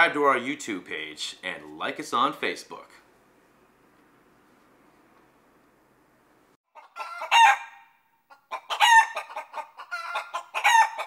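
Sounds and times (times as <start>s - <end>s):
chicken clucking: 6.7s - 7.5s, 8.3s - 11.0s.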